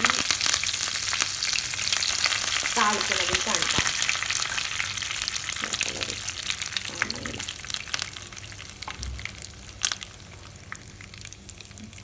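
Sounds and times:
crackles and pops: 0.0 - 12.0
spices sizzling in hot oil: 0.0 - 12.0.

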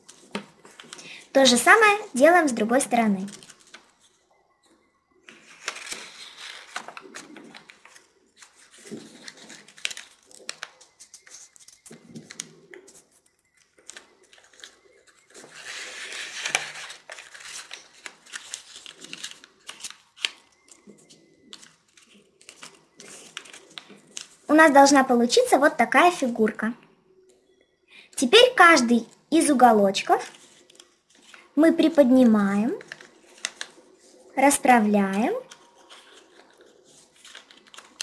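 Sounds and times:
paper rustling and crinkling: 0.0 - 4.6, 5.2 - 24.7, 29.0 - 38.0
paper folds clicking: 3.2 - 4.1, 5.3 - 13.0, 13.6 - 20.8, 21.5 - 24.4, 30.2 - 31.4, 32.8 - 33.8, 35.5 - 38.0.

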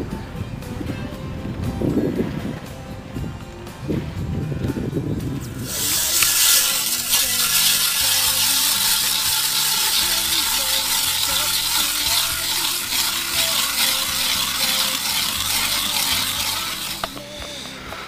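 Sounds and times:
hand ice auger grinding ice: 5.4 - 18.0.

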